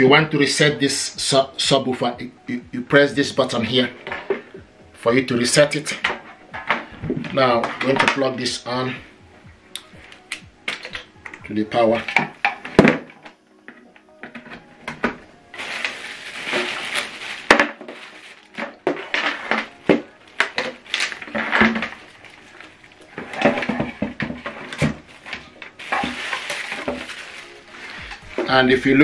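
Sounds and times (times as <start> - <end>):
clicks and knocks of cables: 9.8 - 15.2
plastic bags crinkling: 14.0 - 29.0.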